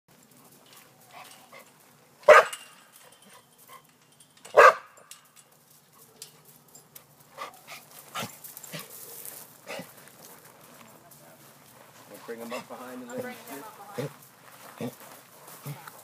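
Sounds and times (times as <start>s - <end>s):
dog barking: 2.3s - 2.6s, 4.5s - 5.0s.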